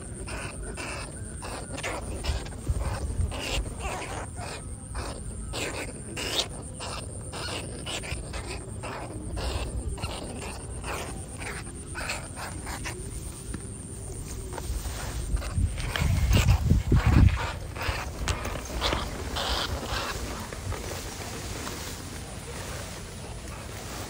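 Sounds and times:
harsh animal squeals: 0:00.0 - 0:13.4, 0:14.9 - 0:20.6.

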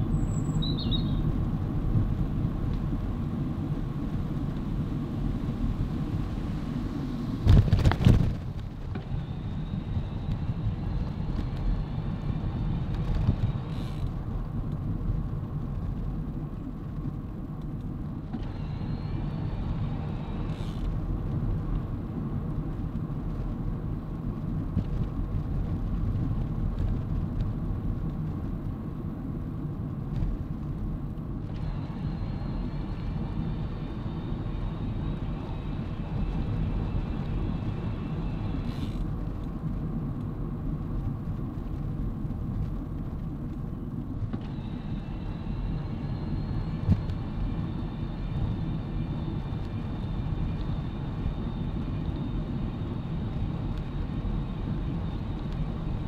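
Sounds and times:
bicycle tyres rolling on tarmac: 0:00.0 - 0:56.0
wind buffeting microphone: 0:00.0 - 0:56.0
faint thin whine: 0:31.4 - 0:39.7, 0:42.6 - 0:56.0.

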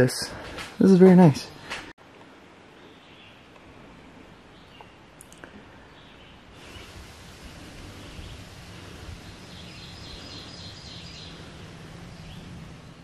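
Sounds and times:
faint birdsong: 0:00.0 - 0:13.0
steady rustling hiss: 0:00.0 - 0:13.0.

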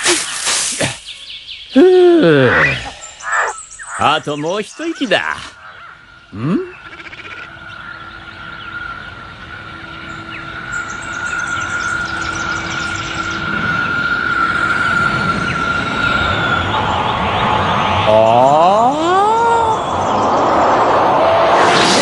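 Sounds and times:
craft whine: 0:07.6 - 0:22.0
rushing noise: 0:09.1 - 0:22.0
rising sweep of pitched tones: 0:10.0 - 0:22.0.

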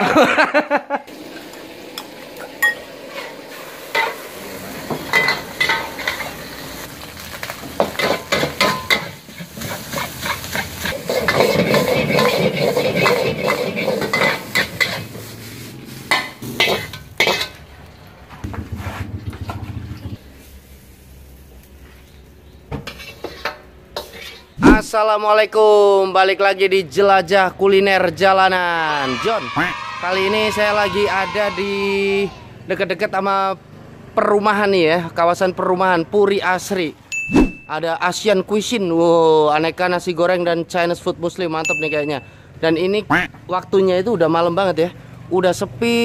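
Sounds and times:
food sizzling: 0:01.1 - 0:17.8, 0:20.2 - 0:25.0
spatula scraping a wok: 0:02.8 - 0:06.9, 0:07.8 - 0:17.6, 0:22.8 - 0:24.6.

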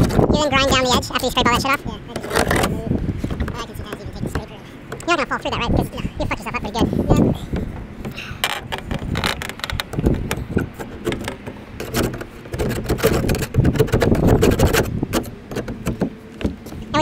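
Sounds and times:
hand scraper scraping sealant: 0:00.0 - 0:01.2, 0:02.1 - 0:02.8, 0:08.7 - 0:16.0.

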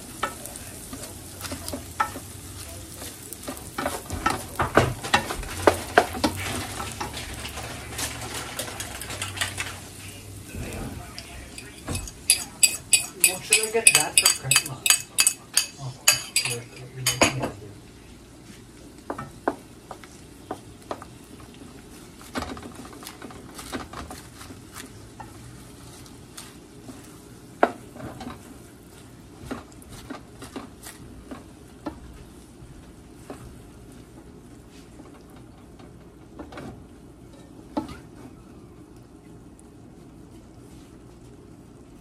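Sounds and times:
frying sizzle: 0:00.0 - 0:42.0
wooden spoon scraping a pan: 0:00.2 - 0:17.2
spoon knocking against pan: 0:11.8 - 0:17.5.

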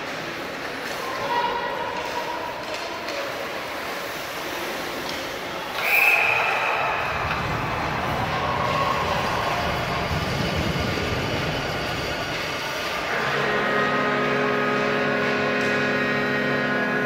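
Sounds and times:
basketball court crowd noise: 0:00.0 - 0:17.0
sharp high squeal: 0:05.8 - 0:07.1.

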